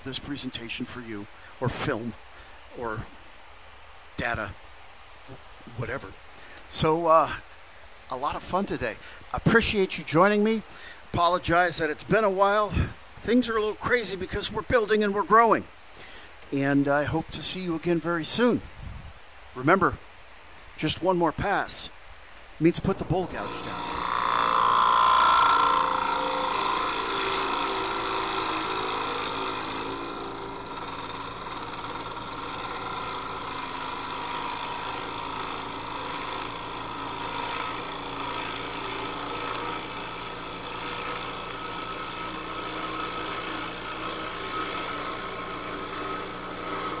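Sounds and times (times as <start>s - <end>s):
wood lathe turning: 23.0s - 47.0s.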